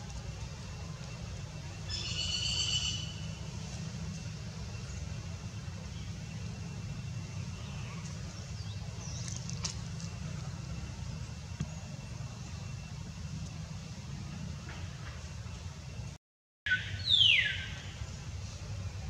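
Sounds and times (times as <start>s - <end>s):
outdoor background rumble: 0.0s - 19.0s
faint high chirp: 1.6s - 3.5s.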